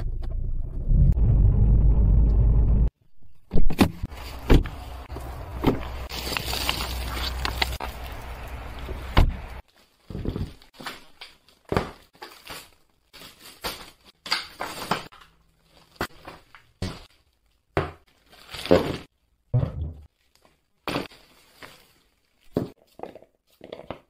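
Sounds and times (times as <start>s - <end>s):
car engine rumble: 0.0s - 3.0s
knocks and thuds: 19.5s - 20.1s.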